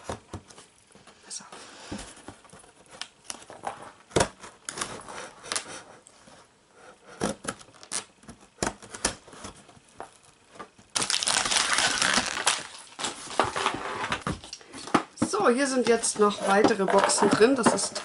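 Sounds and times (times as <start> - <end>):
tape tearing: 7.2 - 9.2, 10.9 - 14.5
cardboard rustling: 7.3 - 14.5
knife slicing packing tape: 11.0 - 13.2.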